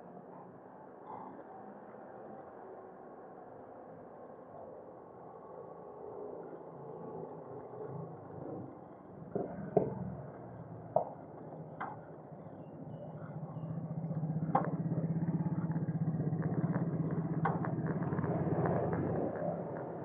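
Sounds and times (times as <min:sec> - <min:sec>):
vehicle engine droning: 0:05.2 - 0:20.0.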